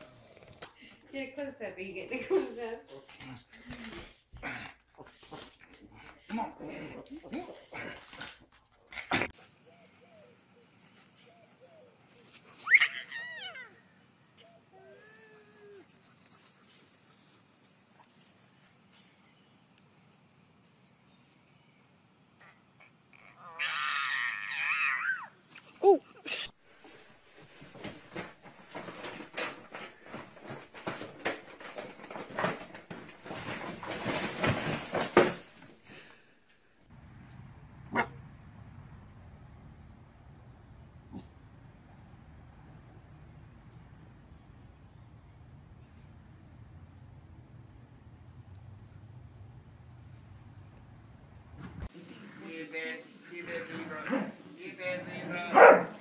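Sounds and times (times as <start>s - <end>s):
dog squealing: 12.6s - 13.8s, 22.4s - 26.4s
puppy whimpering: 12.7s - 13.8s, 14.4s - 15.8s, 23.2s - 26.2s
small pet scrambling on tile: 27.4s - 36.1s
dog bark: 37.9s - 38.2s, 55.5s - 56.0s.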